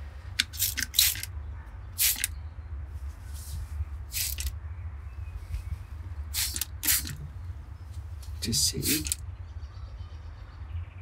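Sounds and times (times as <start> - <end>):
spray bottle squirts: 0.4 - 1.3, 2.0 - 2.3, 4.1 - 4.5, 6.4 - 7.2, 8.8 - 9.2.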